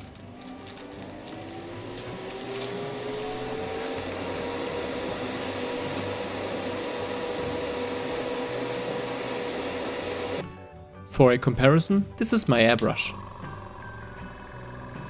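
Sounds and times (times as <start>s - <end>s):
extractor fan rush of air: 1.5s - 10.4s.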